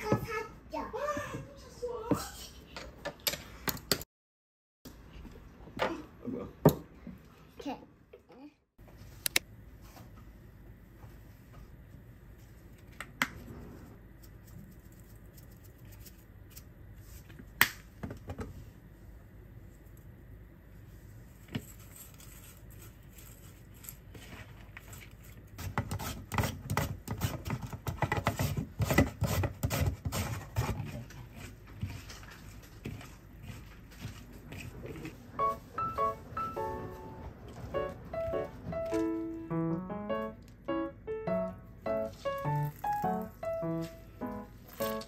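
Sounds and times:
vegetables rustling in a bowl: 21.1s - 26.2s, 28.4s - 35.3s, 42.1s - 45.0s.

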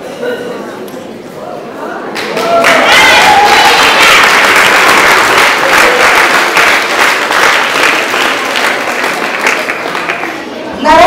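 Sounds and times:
audience applauding: 2.2s - 10.5s.

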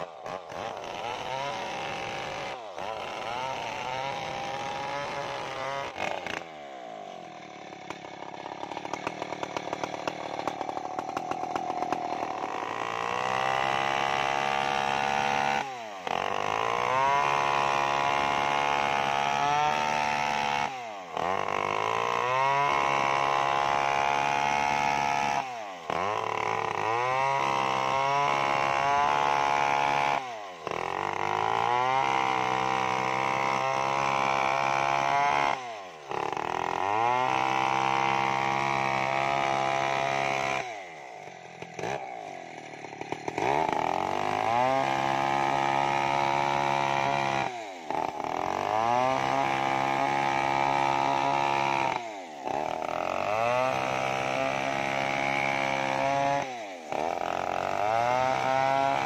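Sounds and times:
chainsaw cutting log: 0.0s - 59.0s.

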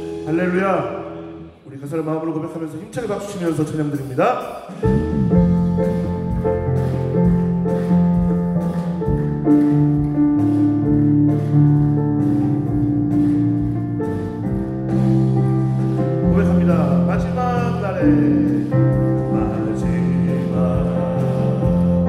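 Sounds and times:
keyboard chords: 0.0s - 1.7s, 4.7s - 22.0s
drums light beat: 3.9s - 22.0s
electric bass guitar: 4.8s - 22.0s.

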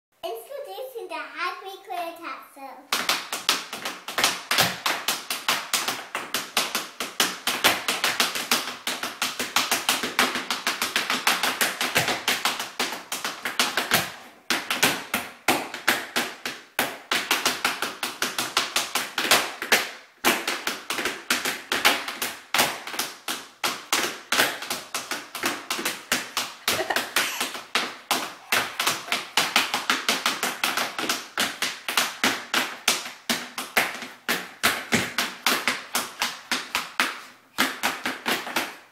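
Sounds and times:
tap shoes on wooden floor: 2.9s - 38.9s.

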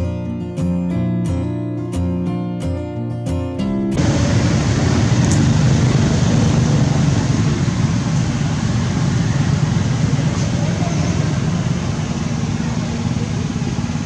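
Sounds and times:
loud low outdoor background noise: 3.8s - 14.0s.

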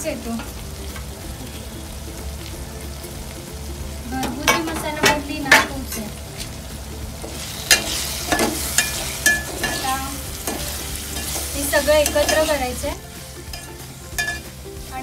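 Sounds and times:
oil sizzling: 0.0s - 15.0s
spoon clinking against pot: 13.5s - 14.5s.

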